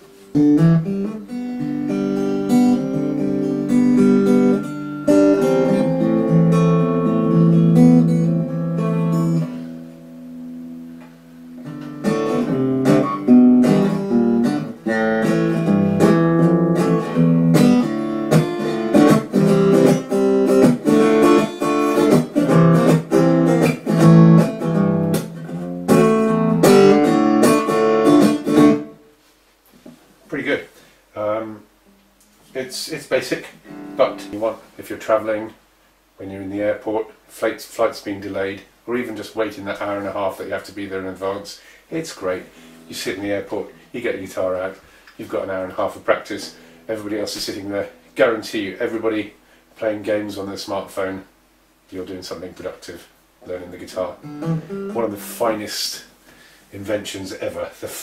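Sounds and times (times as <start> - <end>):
electric guitar chords strummed: 0.0 - 29.0, 33.6 - 34.4, 54.2 - 55.6.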